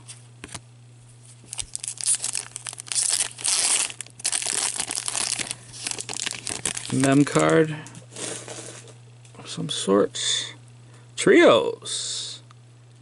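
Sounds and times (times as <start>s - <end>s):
foil wrapper tearing and crinkling: 1.4s - 8.8s.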